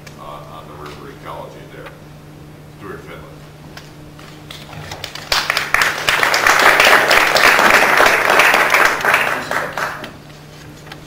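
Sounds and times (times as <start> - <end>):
audience applause: 5.0 - 10.1.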